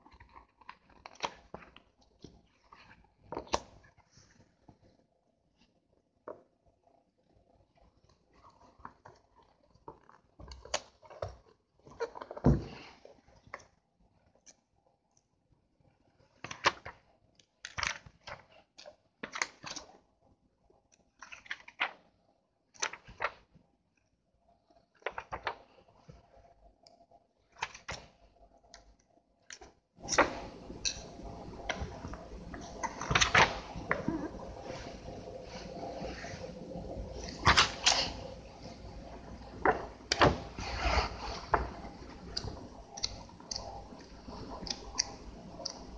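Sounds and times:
book pages turning: 0.0 - 4.7, 17.6 - 19.9, 22.8 - 23.5, 24.8 - 26.3, 29.5 - 45.9
paper rustling: 25.0 - 25.8.

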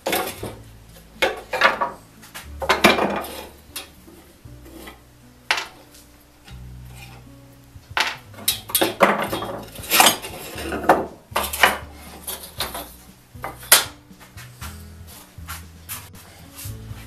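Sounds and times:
metal saw parts clinking on wood: 8.0 - 12.9.

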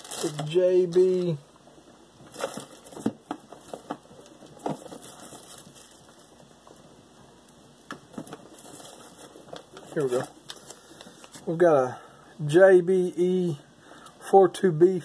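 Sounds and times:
rummaging through plastic packaging: 0.0 - 1.4, 2.2 - 6.4, 8.1 - 11.6.

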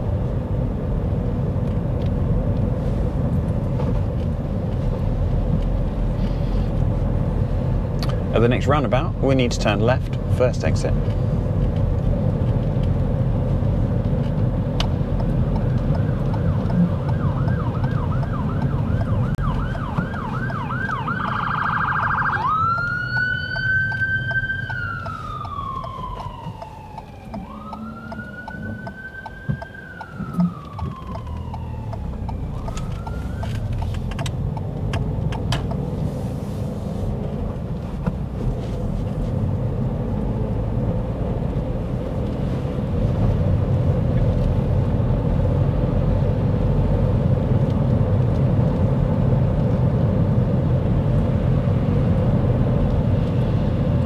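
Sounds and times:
car engine and tyre noise: 0.0 - 54.0
emergency vehicle siren: 15.0 - 34.6.

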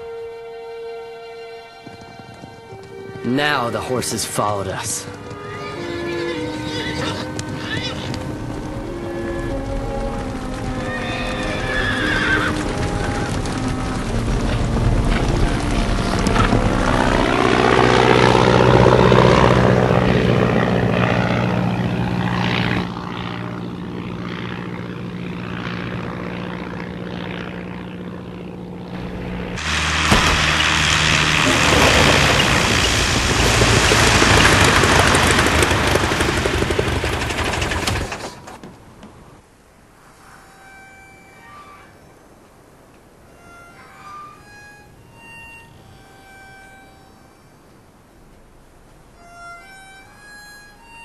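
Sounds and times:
orchestral film music: 0.0 - 20.4
biplane engine and propeller: 0.0 - 51.0
horses whinnying: 5.3 - 8.2, 10.8 - 12.8.

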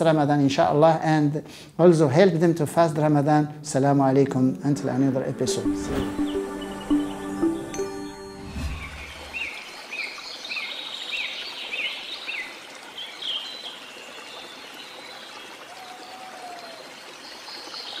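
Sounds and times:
bird chirping: 5.5 - 10.6
flowing water: 8.7 - 18.0.

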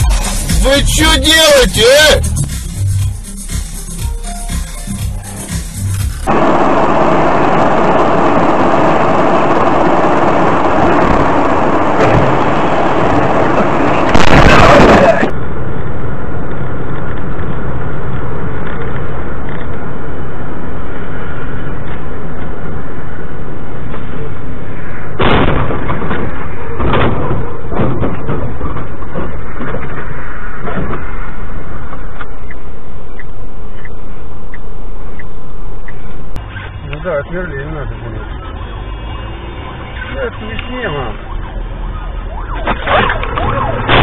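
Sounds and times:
road and engine noise: 0.0 - 44.0
vehicle crash: 5.8 - 15.4, 25.1 - 31.9, 42.4 - 44.0.

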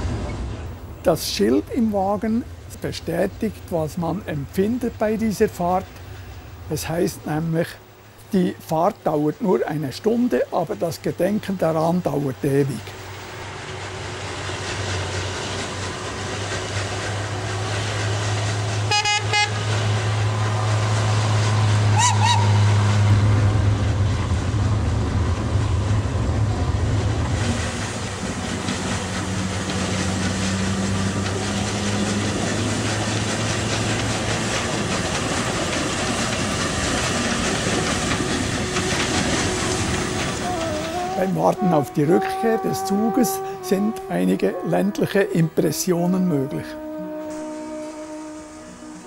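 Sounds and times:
steam train running: 0.0 - 49.0
steam whistle toot: 18.9 - 19.7, 21.9 - 23.0, 40.4 - 49.0.

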